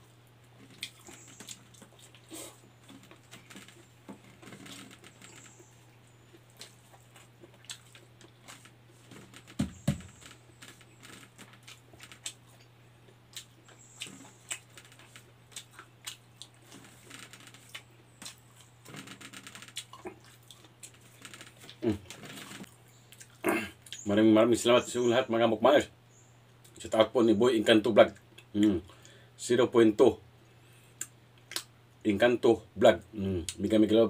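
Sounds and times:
steady low hum: 0.0s - 34.0s
chewing and lip smacks: 0.6s - 3.8s, 6.3s - 9.1s, 10.7s - 18.8s, 19.6s - 24.0s, 30.8s - 31.8s
dull thumps: 8.5s - 11.4s.

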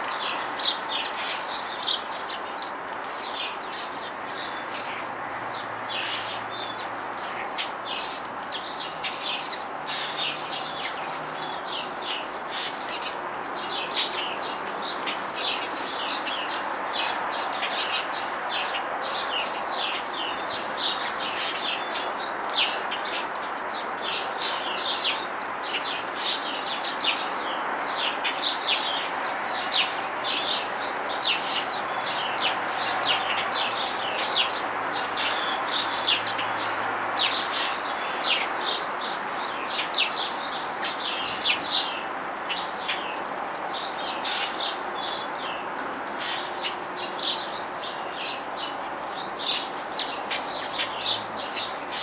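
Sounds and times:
sparrows chirping: 0.0s - 52.0s.

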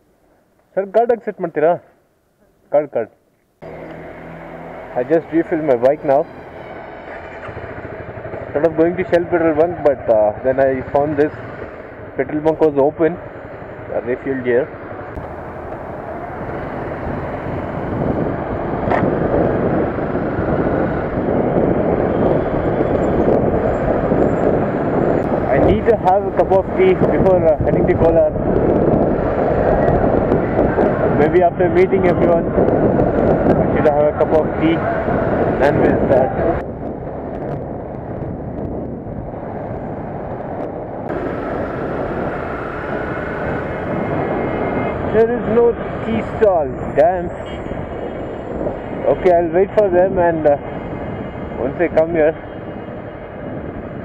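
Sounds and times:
motorcycle engine: 3.6s - 45.1s
wind rushing over microphone: 3.6s - 54.0s.

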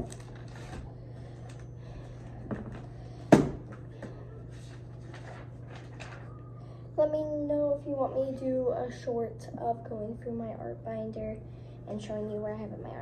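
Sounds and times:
low steady hum: 0.0s - 13.0s
paper rustling: 4.4s - 6.4s.

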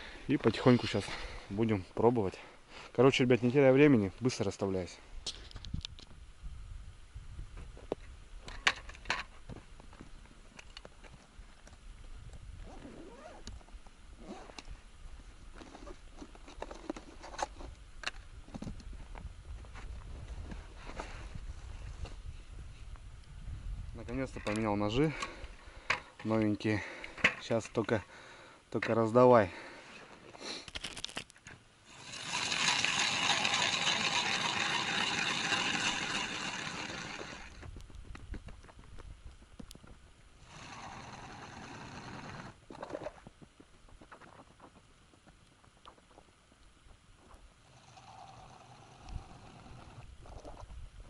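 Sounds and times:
wind rumble on microphone: 5.6s - 8.4s, 17.6s - 24.9s, 37.3s - 40.1s, 49.0s - 51.0s
ice auger scraping ice: 31.9s - 37.6s, 40.4s - 43.2s.

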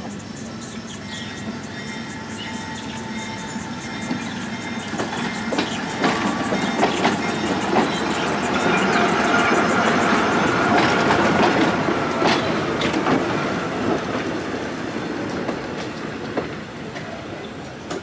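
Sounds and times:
subway car wheels rumbling on track: 0.0s - 18.0s
wheels clicking over rail joints: 4.1s - 14.4s.

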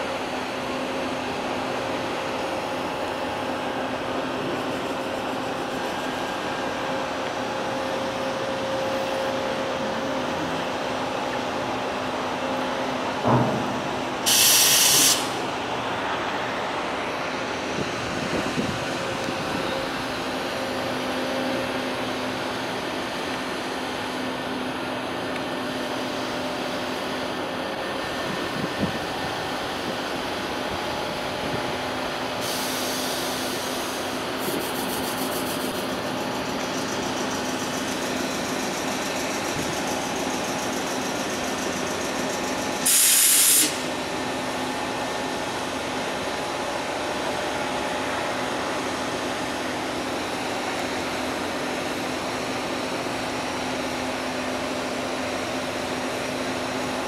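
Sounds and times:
machinery humming: 0.0s - 57.0s
hisses: 14.3s - 15.3s, 42.8s - 43.9s.

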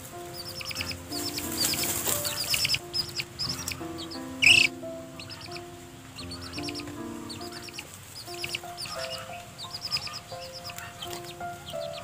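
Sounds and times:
background music: 0.0s - 12.0s
chicks peeping: 0.0s - 12.0s
hen call: 0.4s - 12.0s
wings flapping in dust: 1.2s - 2.8s.

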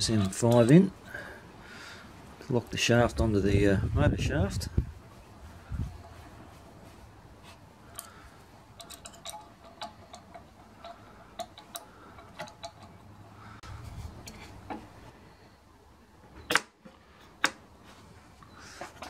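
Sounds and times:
small metal clicks and taps: 7.9s - 8.2s, 8.8s - 13.3s.

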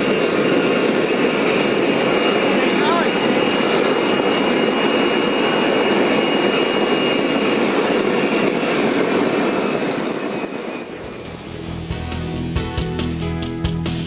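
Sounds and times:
jet engine roaring: 0.0s - 12.0s
high-pitched whine: 0.0s - 12.2s.

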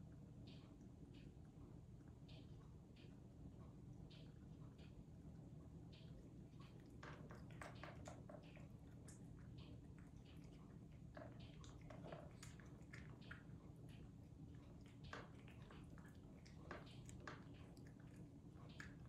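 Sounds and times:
cat chewing wet food: 2.0s - 19.0s.

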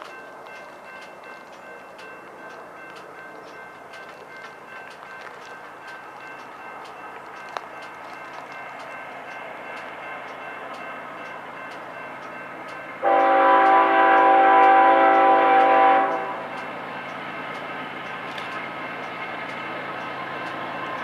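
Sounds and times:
distant locomotive rumble: 0.0s - 21.0s
locomotive air horn blast: 13.0s - 16.5s.

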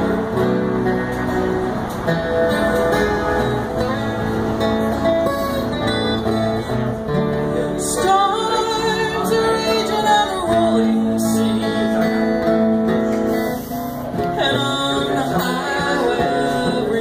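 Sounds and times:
acoustic guitars strummed: 0.0s - 17.0s
woman singing: 7.8s - 12.3s, 14.2s - 17.0s.

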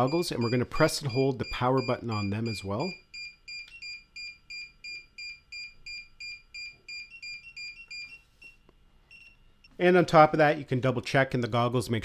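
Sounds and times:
remote controller beeping rapidly: 0.0s - 8.1s.

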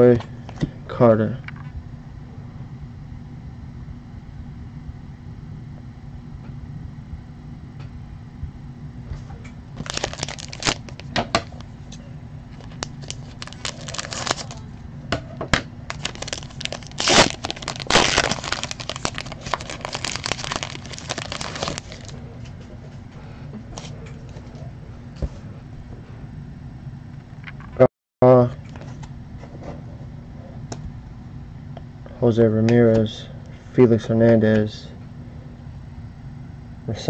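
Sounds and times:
foil wrapper crinkling: 9.8s - 11.7s, 12.5s - 14.7s, 15.9s - 22.2s
scissors cutting foil: 15.9s - 22.1s.

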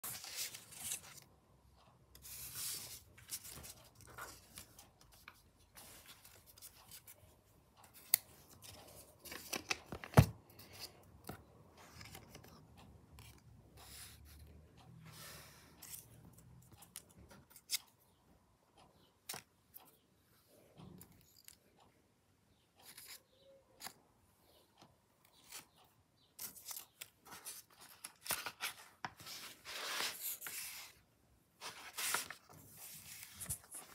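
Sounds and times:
paper rustling: 0.0s - 1.2s, 26.4s - 31.0s, 31.6s - 33.9s.

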